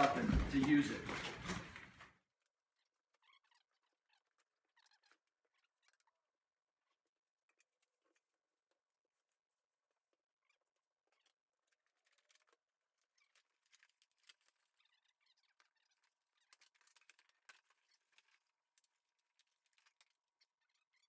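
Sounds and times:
packaging crinkling and scraping: 0.0s - 2.2s, 11.5s - 20.6s.

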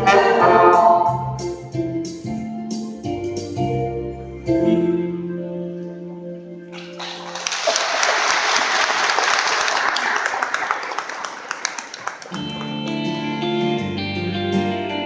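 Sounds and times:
audience applauding: 6.7s - 13.3s
instrumental accompaniment: 12.3s - 15.0s.

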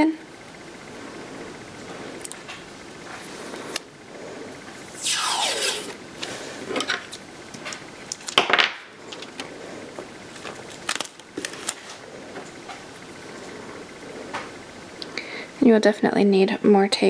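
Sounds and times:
tape pulled off roll screeching: 4.9s - 6.3s.

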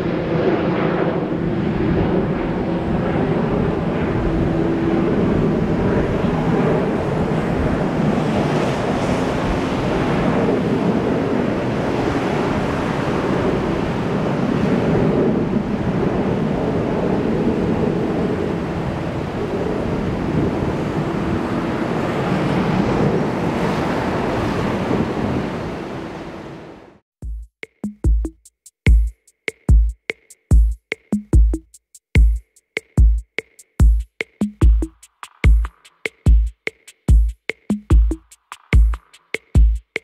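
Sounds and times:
jet engines roaring: 0.0s - 26.7s
wind on microphone: 0.0s - 26.8s.

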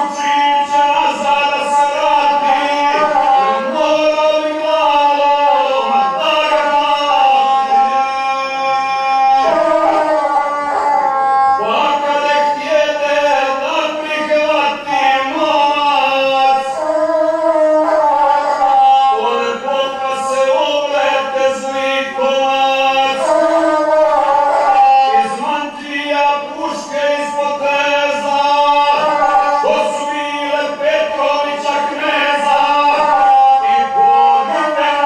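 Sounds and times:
bowed single-string fiddle: 0.0s - 22.4s
man singing: 0.0s - 35.0s.

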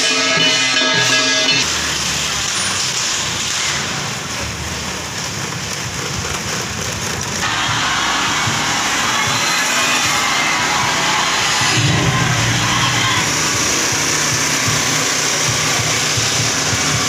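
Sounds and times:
street noise: 0.0s - 17.0s
motor scooters riding by: 1.7s - 17.0s.

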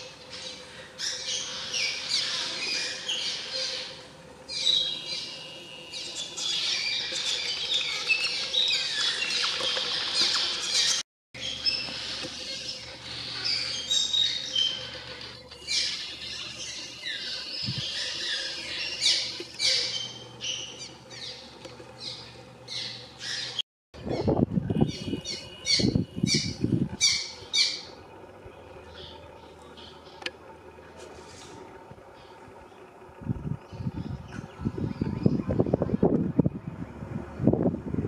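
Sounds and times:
swallows chirping: 0.1s - 15.0s, 15.6s - 23.6s
low rumbling noise: 24.0s - 38.0s.

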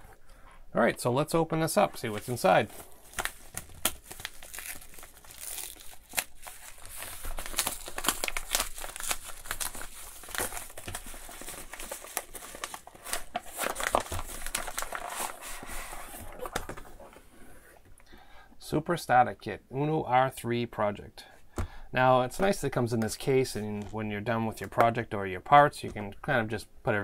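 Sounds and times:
package wrapping tearing: 2.8s - 17.0s.

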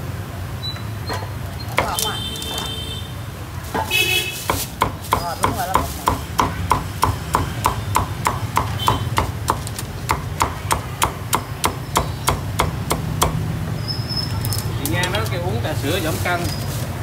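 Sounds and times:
cleaver chopping on wooden block: 4.5s - 13.4s.

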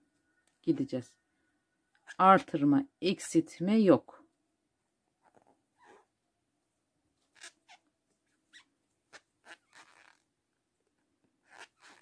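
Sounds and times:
crochet hook squeaking in yarn: 5.3s - 6.1s, 7.3s - 7.9s, 8.5s - 10.2s, 11.4s - 12.0s.

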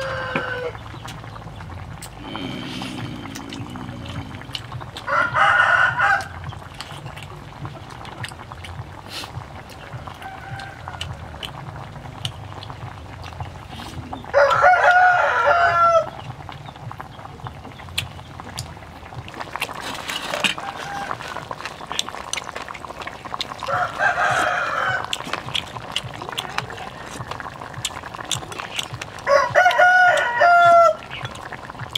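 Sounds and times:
rooster crowing: 0.0s - 0.8s, 5.1s - 6.4s, 10.1s - 11.4s, 14.3s - 16.2s, 20.3s - 21.5s, 23.6s - 25.2s, 29.2s - 31.0s.

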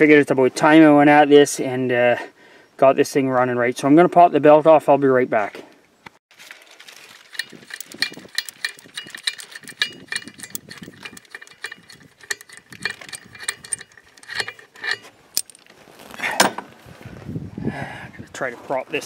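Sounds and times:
metallic clatter: 7.1s - 15.7s
socket ratchet clicking: 7.3s - 15.6s.

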